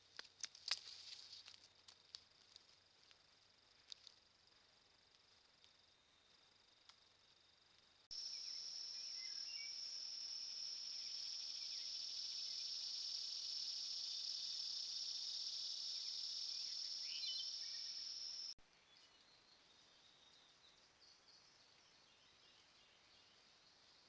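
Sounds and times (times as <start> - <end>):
insects droning: 0.0 - 18.6
bird chirps: 8.1 - 23.4.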